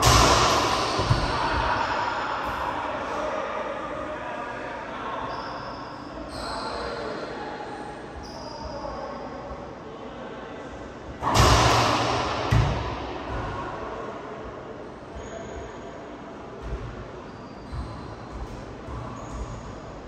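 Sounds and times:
racquetball hitting court wall: 0.0s - 2.9s, 11.2s - 14.1s, 17.6s - 19.9s.

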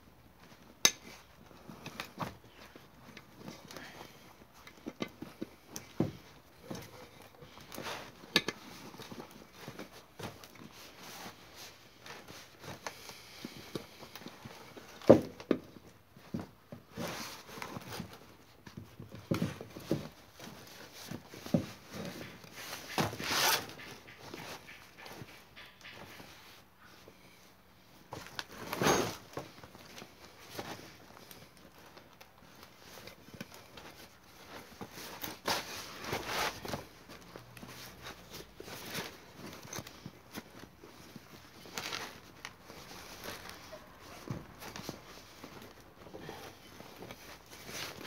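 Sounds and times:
rubber scraping and rustling: 0.3s - 27.2s, 27.9s - 48.0s
rubber scraping rub: 19.7s - 26.6s, 32.7s - 48.0s.

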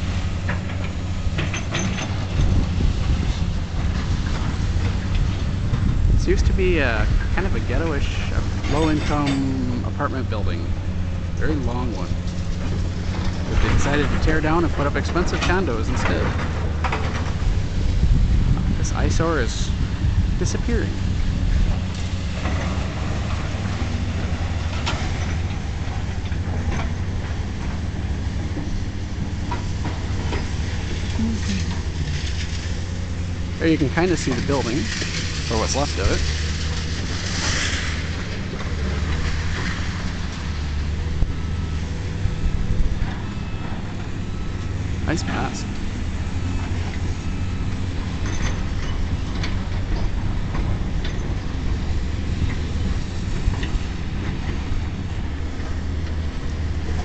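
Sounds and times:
wind buffeting microphone: 2.2s - 8.6s, 16.0s - 22.3s.

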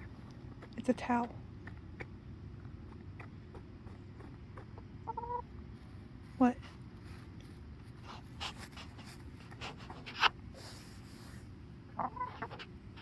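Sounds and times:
scratching and pecking at towel: 0.0s - 13.0s
hen clucking: 3.2s - 5.5s, 11.9s - 13.0s.

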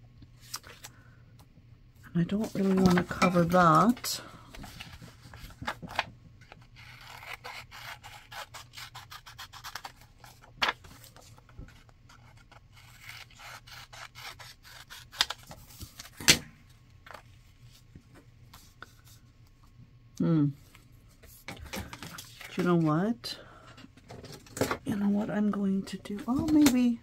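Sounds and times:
scissors snipping paper: 6.4s - 10.1s, 12.2s - 15.5s.

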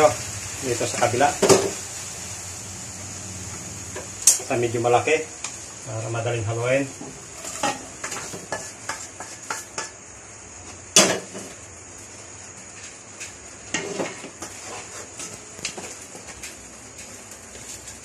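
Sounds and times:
pan clanking on stove: 1.4s - 1.8s, 7.0s - 10.0s
wooden spatula scraping pot: 7.3s - 9.9s, 13.7s - 15.4s
metal cookware clattering: 7.4s - 9.9s.

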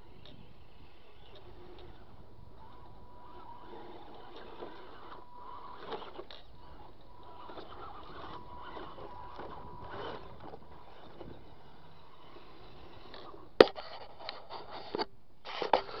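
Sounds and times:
electric motor whine: 0.0s - 13.7s
tyres scraping over wood and grass: 2.6s - 16.0s
short knocks and scrapes: 13.1s - 16.0s.

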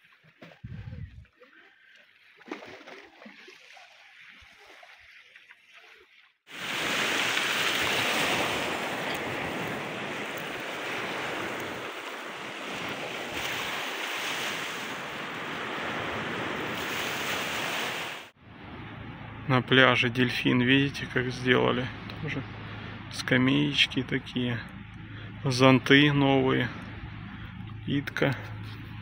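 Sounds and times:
faint water sounds: 0.0s - 29.0s
surf rushing on beach: 6.5s - 18.4s.

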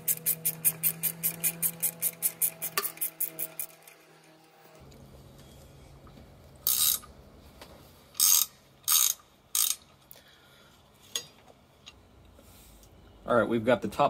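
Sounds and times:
ratchet wrench clicking: 0.0s - 3.9s, 6.6s - 7.1s, 8.2s - 9.9s.

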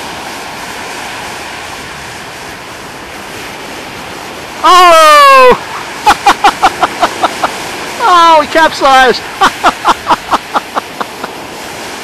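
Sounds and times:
surf rushing: 0.0s - 12.0s
person shouting oh: 4.6s - 5.7s, 8.0s - 8.5s.

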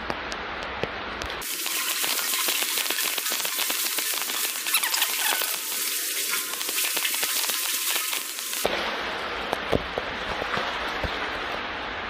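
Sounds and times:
water running and splashing: 1.4s - 8.7s.

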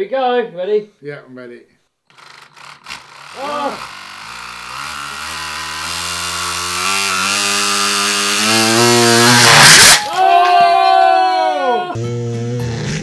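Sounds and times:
model engine whirring and rattling: 2.1s - 10.0s.

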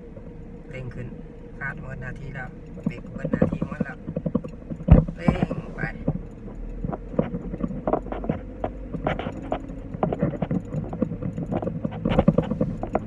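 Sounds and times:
car engine hum: 0.0s - 13.0s
knocks and rattles in car cabin: 0.0s - 13.0s.

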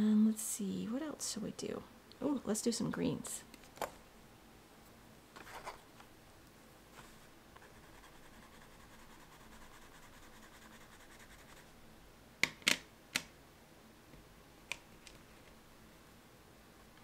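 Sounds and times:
wax pastel scratching on paper: 7.6s - 11.7s.

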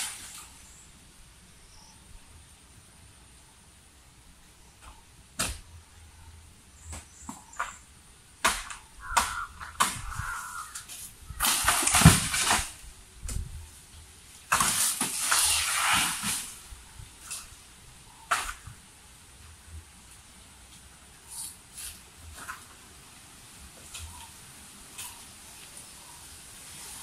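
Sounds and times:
palm fronds crashing down: 0.0s - 0.6s, 8.4s - 12.9s, 14.3s - 17.5s
sharp chopping knocks: 5.4s - 5.7s, 8.4s - 10.4s.

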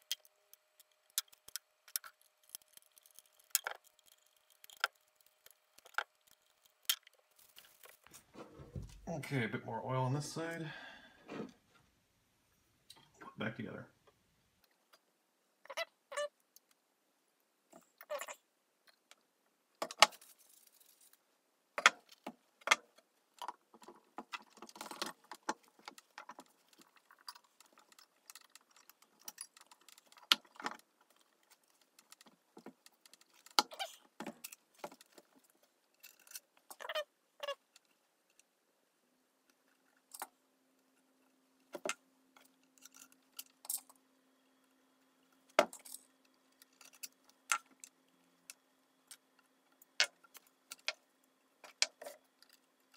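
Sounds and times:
metal parts clinking and scraping: 33.0s - 36.9s.

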